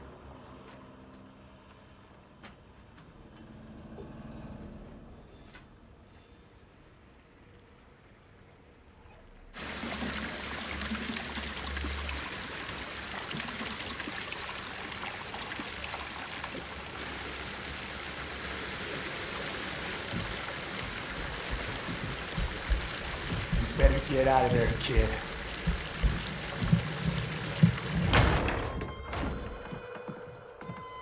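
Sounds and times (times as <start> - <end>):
pouring water rushing: 9.6 - 28.4
low thumps: 20.1 - 30.2.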